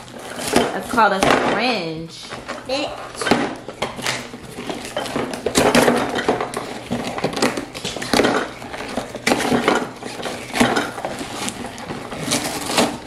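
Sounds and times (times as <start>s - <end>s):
paper and plastic bags rustling: 0.0s - 13.0s
plastic pieces clattering: 3.2s - 13.0s.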